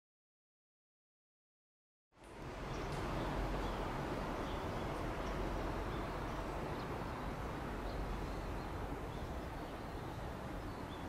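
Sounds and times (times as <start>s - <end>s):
low outdoor rumble: 2.2s - 11.0s.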